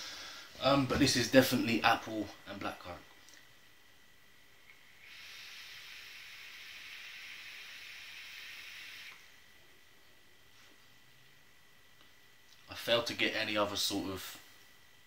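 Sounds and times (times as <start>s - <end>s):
vape dripper hissing: 4.7s - 9.4s.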